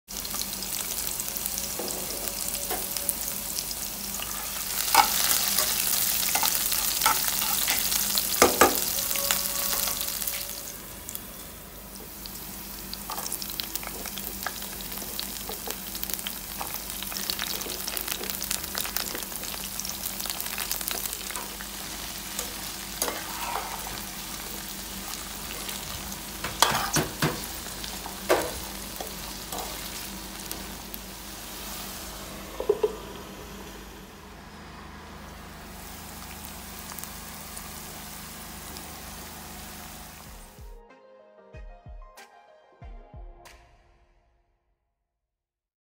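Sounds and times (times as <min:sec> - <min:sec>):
food sizzling in hot oil: 0:00.1 - 0:33.7, 0:35.2 - 0:40.6
spatula scraping pan: 0:04.1 - 0:10.8, 0:20.6 - 0:30.1.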